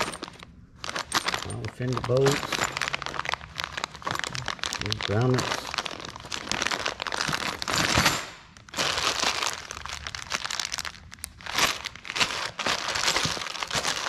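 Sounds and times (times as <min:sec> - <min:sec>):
plastic bags crinkling: 0:00.0 - 0:14.0.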